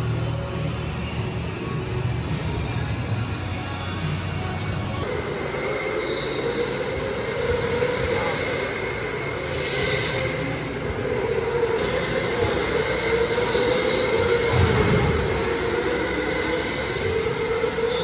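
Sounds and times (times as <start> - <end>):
steady machine hum: 0.0 - 18.0
droning tone rising and falling: 4.9 - 18.0.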